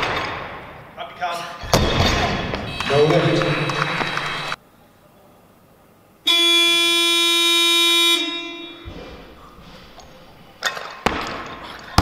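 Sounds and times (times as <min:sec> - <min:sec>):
electronic horn tone: 0:02.6 - 0:04.6, 0:06.3 - 0:08.9.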